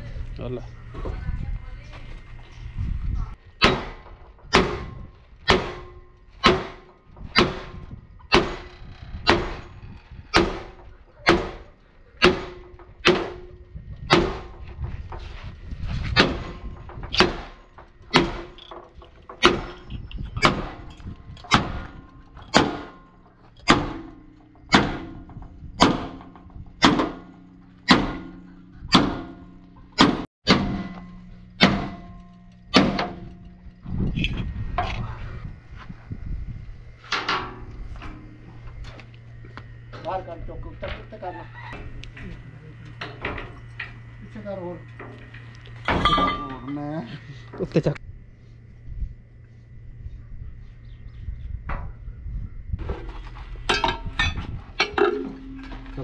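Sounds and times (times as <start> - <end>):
sledgehammer striking steel: 3.6 - 14.7, 16.1 - 18.8, 19.4 - 33.7, 45.8 - 46.8.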